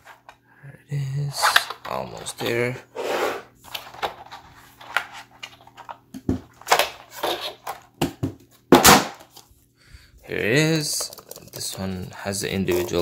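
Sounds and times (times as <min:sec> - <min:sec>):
packaging rustling and scraping: 0:03.0 - 0:08.0.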